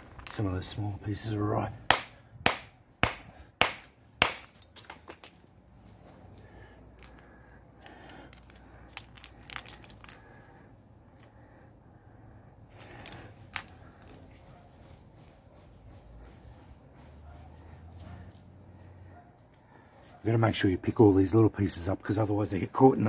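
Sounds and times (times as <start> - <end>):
rock pieces handled on grass: 0.0 - 1.7, 4.4 - 11.9, 12.6 - 23.0
hammer striking rock: 1.9 - 5.2
rock chips clinking: 7.9 - 10.3.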